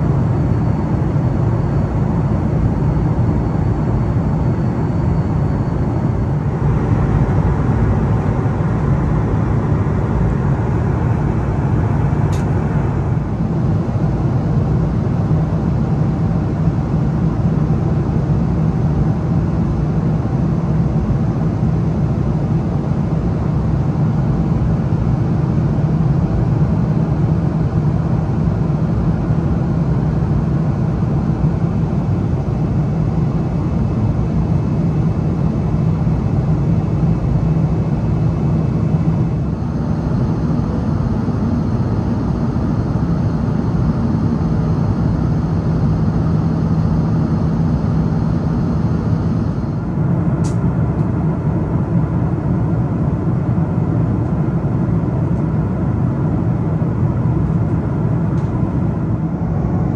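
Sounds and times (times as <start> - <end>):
faint high whine: 0.0 - 16.8, 32.0 - 51.4
airplane cabin engine drone: 0.0 - 59.9.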